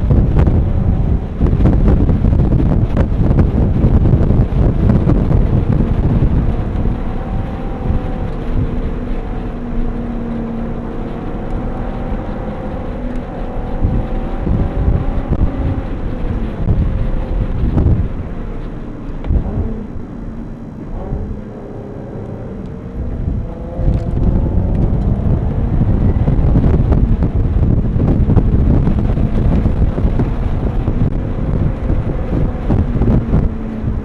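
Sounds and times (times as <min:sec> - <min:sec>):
car engine from inside cabin: 0:00.0 - 0:34.0
wind and road noise: 0:00.0 - 0:34.0.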